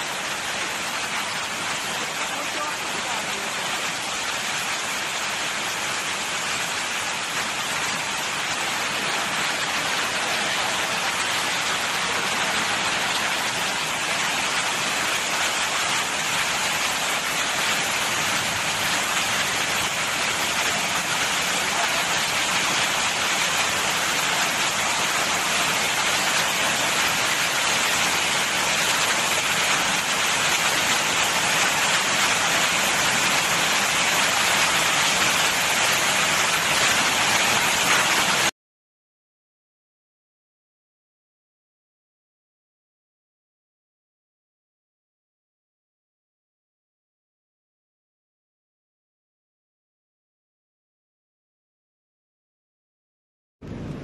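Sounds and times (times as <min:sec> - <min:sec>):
heavy rain on flooded street: 0:00.0 - 0:38.5, 0:53.6 - 0:54.0.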